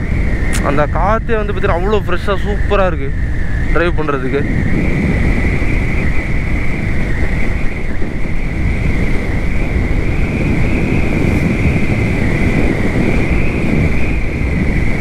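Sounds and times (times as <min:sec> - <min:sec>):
steady high whine: 0:00.0 - 0:15.0
wind rushing over microphone: 0:00.0 - 0:15.0
motorcycle riding: 0:04.4 - 0:15.0.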